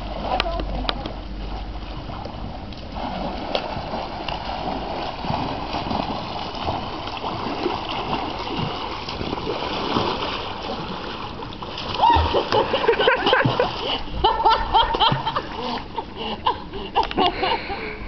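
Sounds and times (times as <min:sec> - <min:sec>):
pool water splashing: 0:00.0 - 0:17.8.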